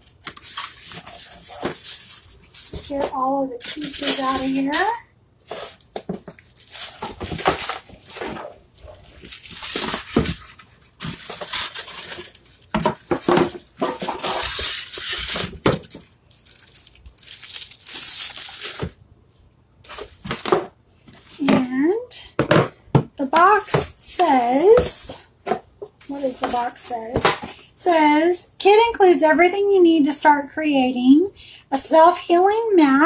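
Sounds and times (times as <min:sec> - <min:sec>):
cardboard rustling: 0:00.0 - 0:19.0, 0:23.6 - 0:27.5
plastic wrapping crinkling: 0:00.0 - 0:19.0.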